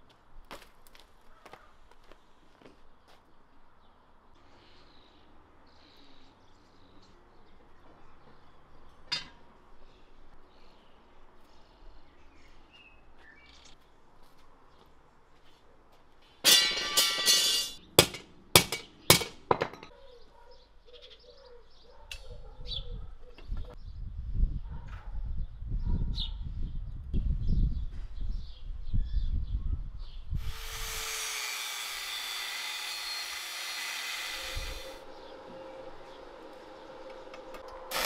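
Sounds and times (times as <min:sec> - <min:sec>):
metal rebar clattering: 0:16.4 - 0:19.9
sharp metal strikes: 0:16.5 - 0:19.4
small birds chirping: 0:19.9 - 0:24.1.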